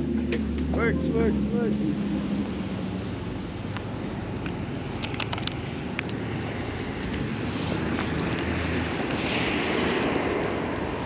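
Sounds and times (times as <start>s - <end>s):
low rumble: 0.0s - 11.0s
traffic on snowy road: 0.0s - 11.0s
wind on microphone: 0.0s - 11.0s
small sharp clicks: 3.7s - 6.2s.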